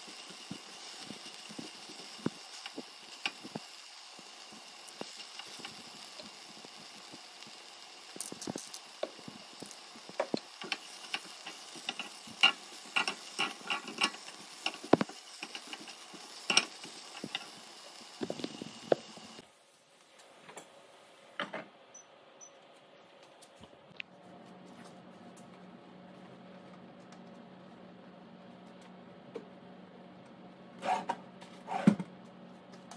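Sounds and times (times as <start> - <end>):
food sizzling in a skillet: 0.0 - 19.4.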